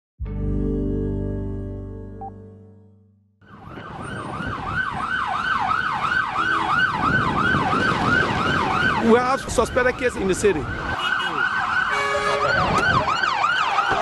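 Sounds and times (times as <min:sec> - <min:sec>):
ambulance siren yelping: 0:03.4 - 0:14.0
street traffic noise: 0:03.4 - 0:14.0.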